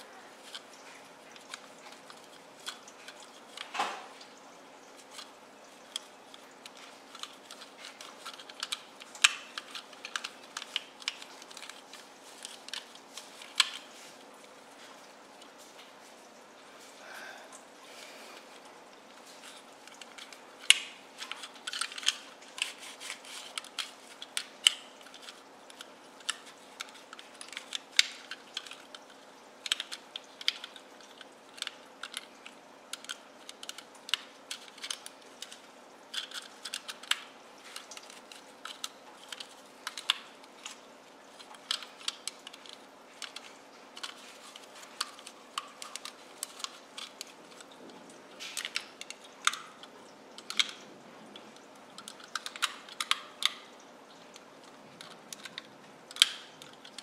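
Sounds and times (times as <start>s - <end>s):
plastic clicks and scrapes: 0.0s - 4.1s, 4.9s - 14.3s, 18.4s - 57.0s.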